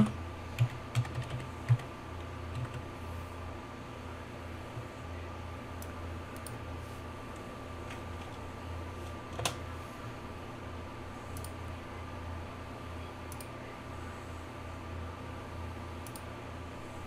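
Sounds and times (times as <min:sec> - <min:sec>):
faint steady whine: 0:00.0 - 0:17.0
steady low hum: 0:00.0 - 0:17.0
computer mouse clicks: 0:05.8 - 0:06.6, 0:11.4 - 0:11.6, 0:16.0 - 0:16.3.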